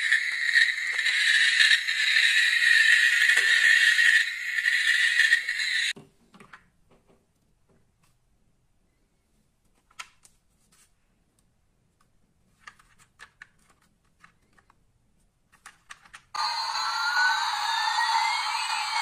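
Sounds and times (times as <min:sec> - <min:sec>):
electronic toy sound effect: 0:00.0 - 0:05.9, 0:16.4 - 0:19.0.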